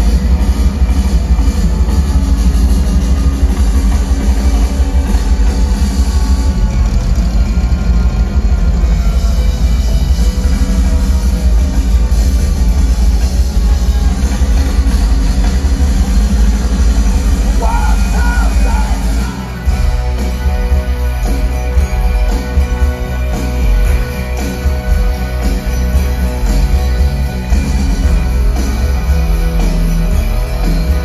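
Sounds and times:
live rock band playing: 0.0s - 31.0s
person singing: 17.6s - 19.7s.

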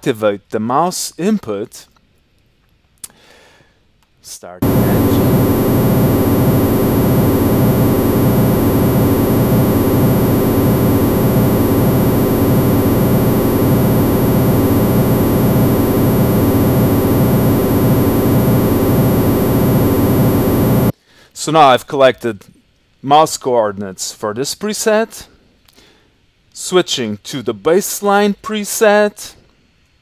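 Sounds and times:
noisy synthesizer drone: 4.6s - 20.9s.

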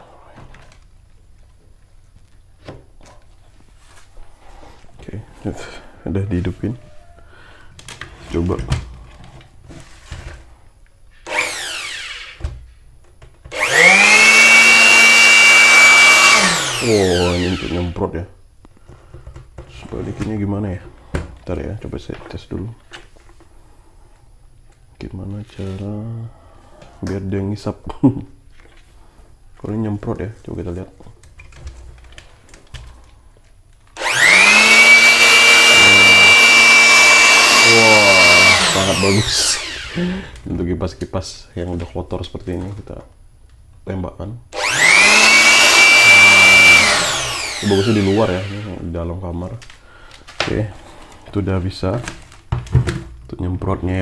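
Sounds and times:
electric blower motor whining: 11.2s - 12.5s, 13.5s - 18.0s, 34.0s - 40.4s, 44.5s - 48.9s.

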